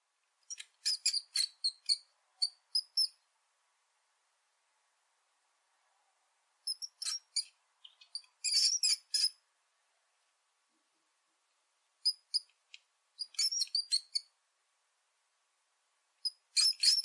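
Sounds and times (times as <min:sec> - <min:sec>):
rapid high-pitched chirps and squeaks: 0:00.5 - 0:03.2, 0:06.7 - 0:09.4, 0:12.0 - 0:12.5, 0:13.2 - 0:14.3, 0:16.2 - 0:17.0.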